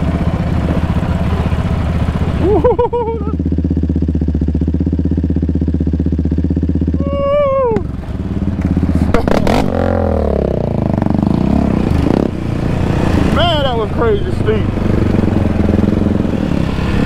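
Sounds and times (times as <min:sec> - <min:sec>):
quad engines idling and revving: 0:00.0 - 0:17.0
rattling on rough trail: 0:00.0 - 0:17.0
person calling out: 0:06.9 - 0:07.9.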